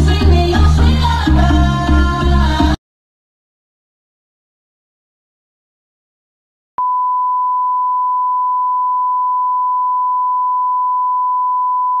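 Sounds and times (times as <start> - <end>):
steady test tone beep: 6.8 - 12.0.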